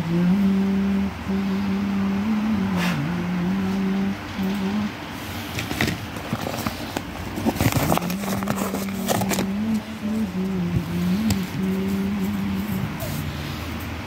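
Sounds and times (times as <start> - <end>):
papers rustling: 5.5 - 12.0.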